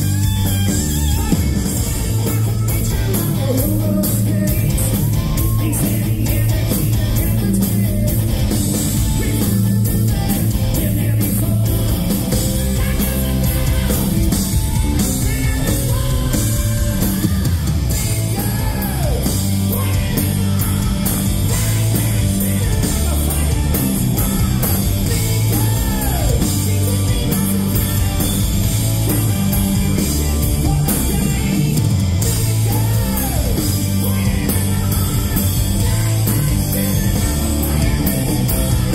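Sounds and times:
hard rock band playing live: 0.0 - 38.9
man singing: 0.8 - 38.9.

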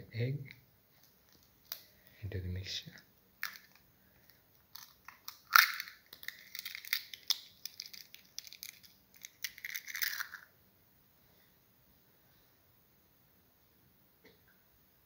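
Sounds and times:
eggshell crackling: 0.9 - 2.2, 2.9 - 10.5
egg cracking against bowl: 3.4 - 3.8, 4.6 - 10.5.

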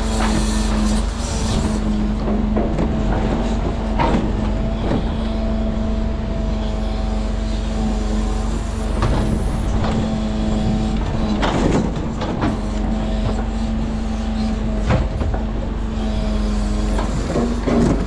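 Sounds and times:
truck diesel engine humming: 0.0 - 18.0
knocks and clunks: 2.1 - 5.4, 8.9 - 13.6, 14.7 - 15.8, 16.9 - 18.0.

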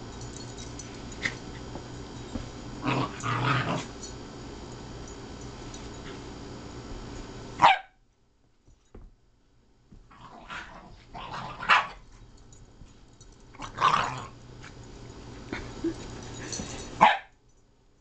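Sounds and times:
dogs growling: 2.8 - 3.9, 13.6 - 14.4
dogs barking: 7.6 - 7.9, 17.0 - 17.3.

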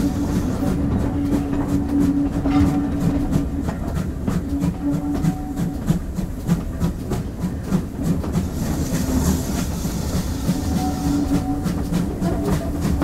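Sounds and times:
steam hiss: 0.0 - 0.8, 5.2 - 13.0
steam locomotive rumbling: 0.0 - 13.0.

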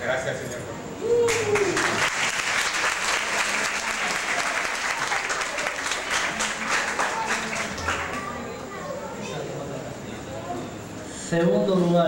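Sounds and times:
audience applauding: 1.2 - 8.5.

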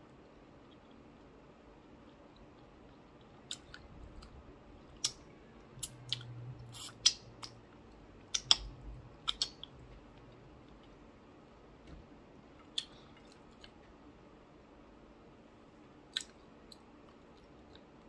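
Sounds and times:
person chewing: 0.2 - 5.2, 5.8 - 7.6, 8.3 - 11.0, 16.1 - 18.0.

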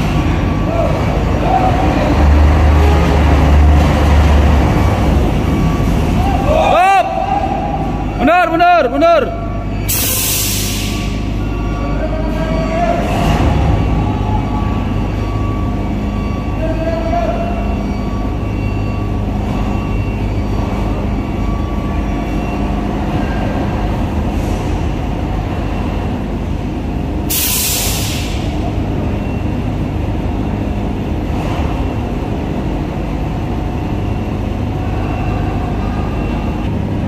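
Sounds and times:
diesel engine droning: 0.0 - 37.0
air hissing: 9.9 - 11.2, 27.3 - 28.6.

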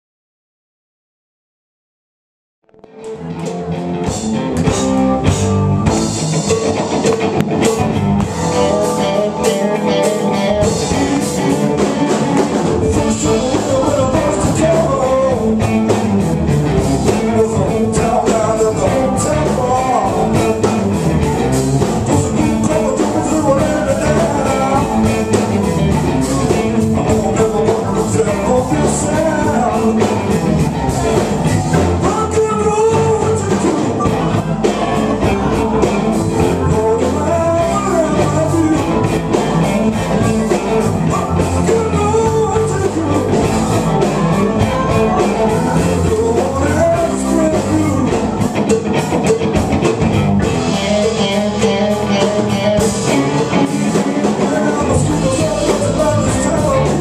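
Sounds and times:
blues-rock band playing: 2.7 - 57.0
person singing: 6.4 - 57.0.

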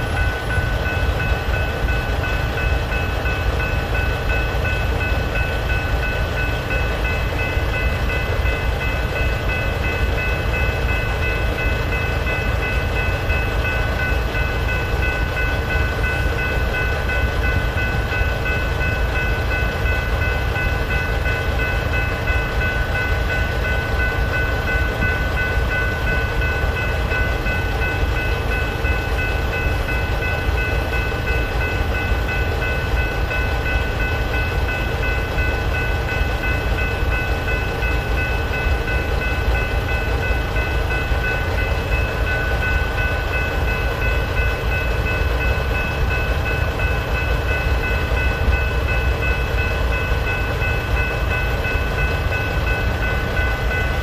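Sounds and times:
electronic crossing bell ringing: 0.0 - 54.0.

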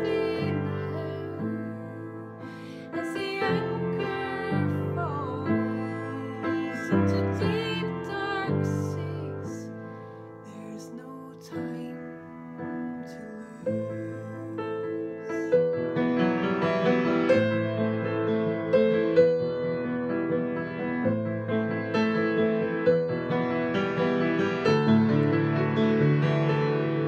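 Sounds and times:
digital piano ballad: 0.0 - 27.0.

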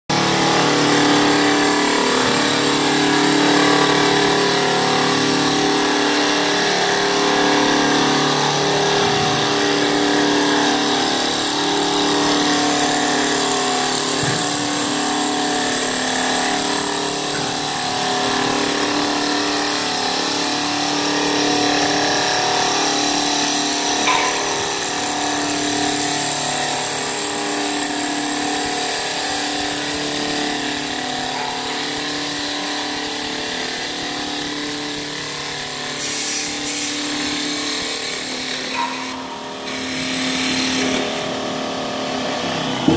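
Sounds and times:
lathe motor hum: 0.1 - 42.9
hiss of wood cutting: 35.7 - 41.4.

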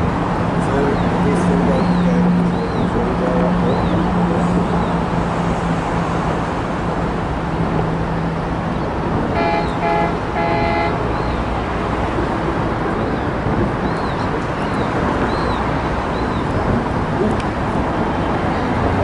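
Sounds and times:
horn toots: 9.3 - 11.0.

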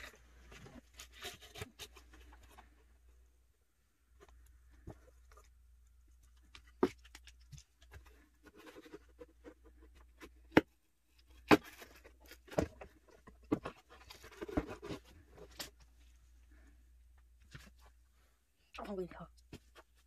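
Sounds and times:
cardboard rustling and scraping: 0.0 - 3.1, 6.3 - 16.6.

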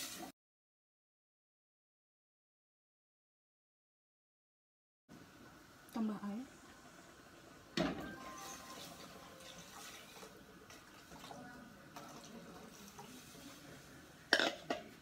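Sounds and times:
water pouring into saucepan: 0.0 - 0.3, 8.2 - 14.7.

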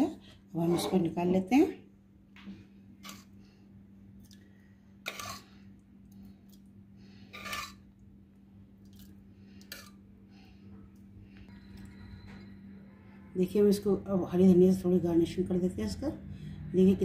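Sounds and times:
low hum: 1.3 - 17.0
ladle scraping in pot: 3.0 - 3.3, 5.0 - 5.6, 7.3 - 7.8
clinks and wet splashes: 4.2 - 5.5, 8.8 - 10.0.

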